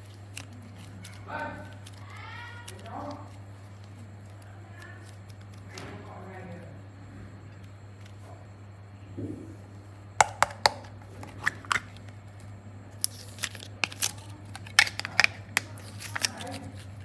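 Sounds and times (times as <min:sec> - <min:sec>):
plastic mold clicking and crinkling: 0:10.2 - 0:12.0, 0:13.0 - 0:16.9.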